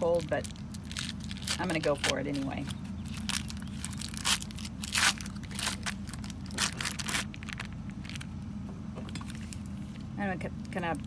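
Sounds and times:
foil wrapper crinkling and tearing: 0.0s - 8.4s
low hum: 0.0s - 11.0s.

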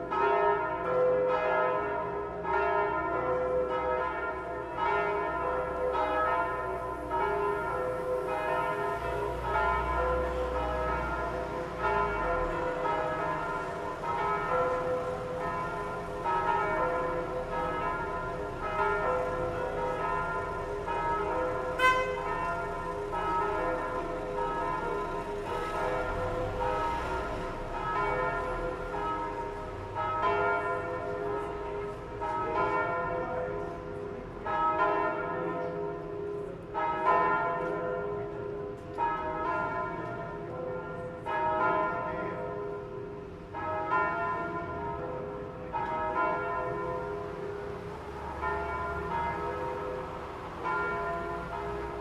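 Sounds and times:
church bells ringing: 0.0s - 52.0s.

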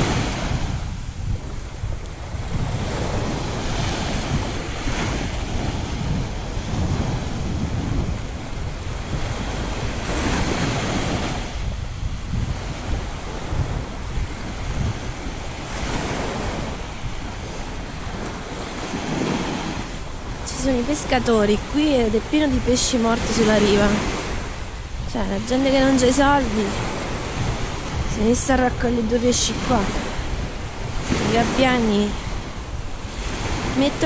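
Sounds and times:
waves breaking on shore: 0.0s - 34.0s
wind buffeting microphone: 0.0s - 34.0s.

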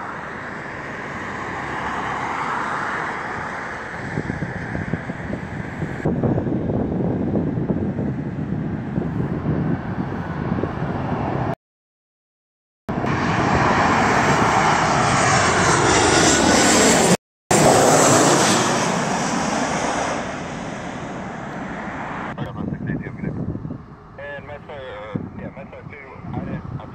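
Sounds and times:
jet airliner passing overhead: 0.0s - 11.6s, 12.9s - 26.9s
wind buffeting microphone: 3.9s - 11.5s, 22.3s - 26.9s.

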